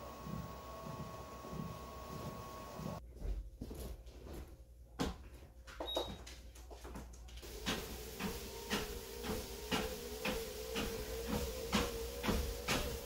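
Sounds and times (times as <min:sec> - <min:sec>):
treadmill motor whine: 0:00.0 - 0:03.0, 0:07.4 - 0:13.0
footsteps on moving belt: 0:00.2 - 0:12.4.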